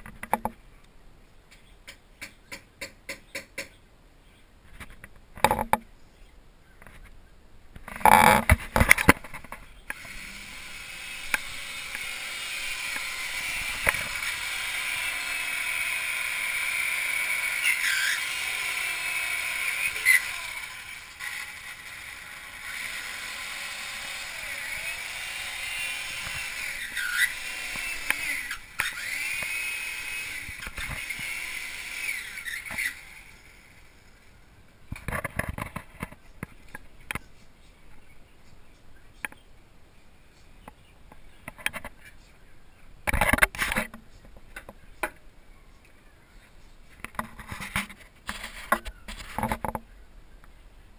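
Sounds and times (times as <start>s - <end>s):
electric drill boring into wood: 9.9s - 33.9s.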